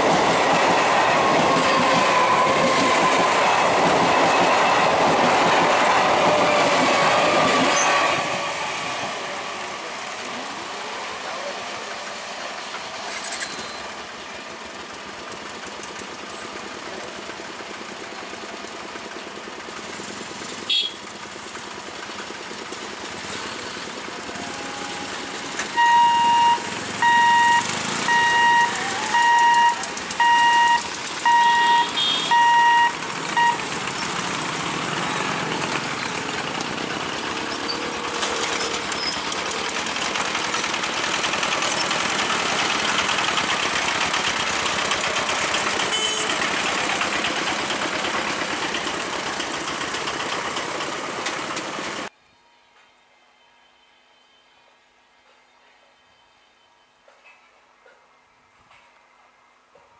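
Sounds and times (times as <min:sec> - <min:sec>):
road vehicle engines: 0:00.0 - 0:52.1
crossing barrier warning beeps: 0:25.7 - 0:33.8.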